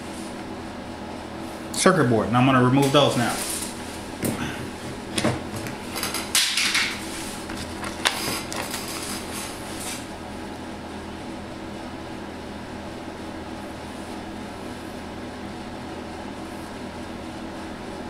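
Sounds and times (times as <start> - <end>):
steady low hum: 0.0 - 18.0
metal tools clattering on bench: 5.9 - 7.0.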